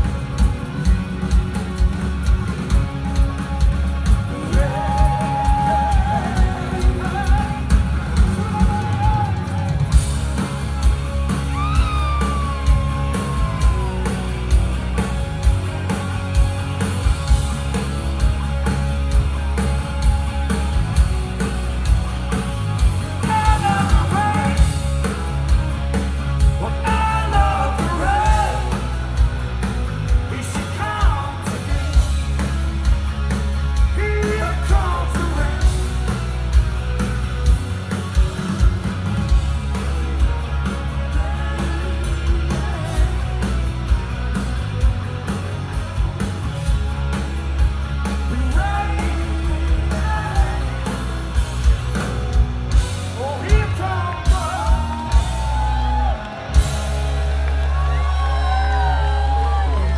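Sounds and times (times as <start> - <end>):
bass guitar: 0.0 - 59.9
drums: 0.0 - 59.9
electric guitars: 0.0 - 59.9
man singing lead vocal: 4.2 - 9.6, 23.2 - 24.8, 26.6 - 28.9, 30.2 - 32.4, 33.9 - 36.0, 48.3 - 51.0, 53.2 - 55.1.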